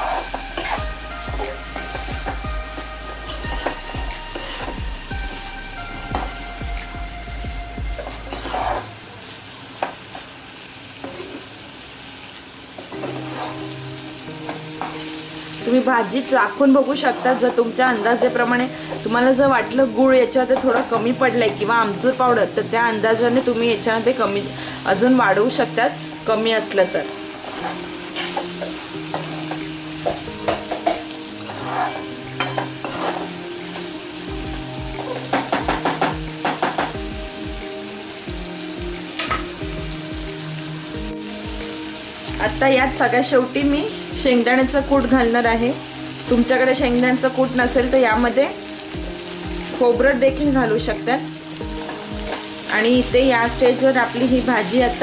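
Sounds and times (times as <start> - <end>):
metal spatula scraping pan: 0.0 - 2.1, 3.2 - 4.8, 8.0 - 9.0, 13.0 - 13.8, 14.5 - 15.2, 16.8 - 19.0, 27.3 - 33.8
vegetables sizzling: 0.0 - 55.0.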